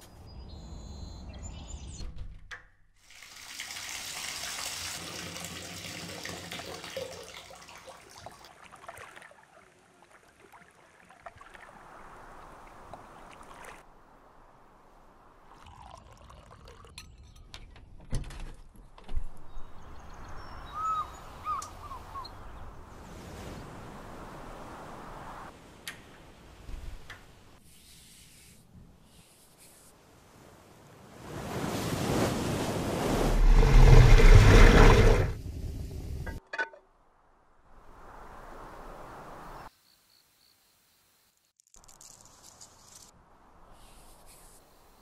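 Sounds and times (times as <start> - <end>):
water splashing and trickling: 3.0 - 17.4, 31.2 - 35.4.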